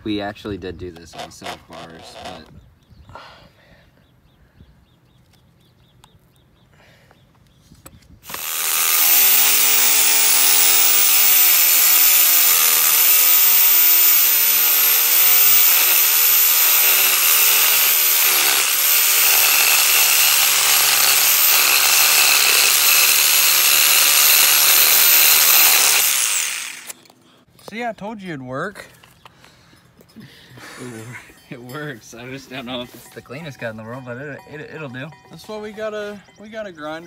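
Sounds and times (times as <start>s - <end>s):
reciprocating saw cutting metal pipe: 8.3s - 27.0s.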